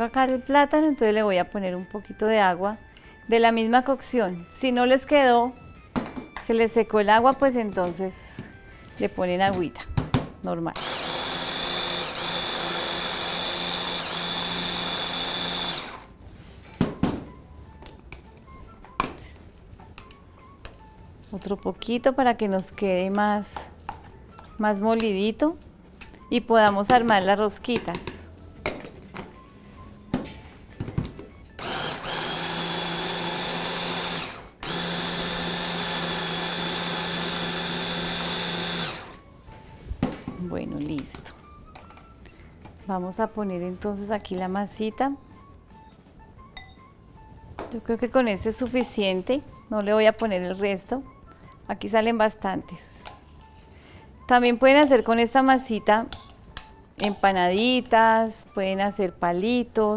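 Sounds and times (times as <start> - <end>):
hand blender whining: 10.8 - 16.2, 31.6 - 39.2.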